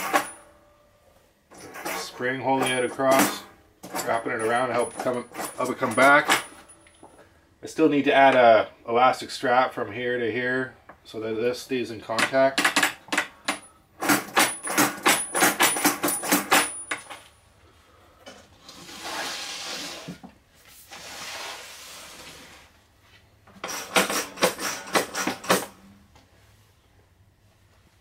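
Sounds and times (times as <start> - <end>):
soft rustling scrape: 18.5 - 23.4, 26.3 - 28.0.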